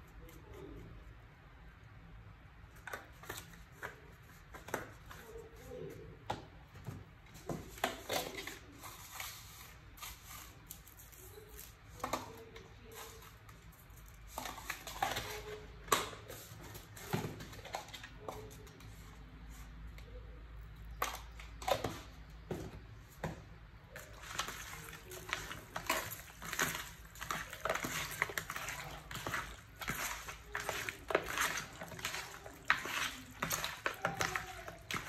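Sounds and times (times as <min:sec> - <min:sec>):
containers clicking and tapping: 0:20.9 - 0:35.0.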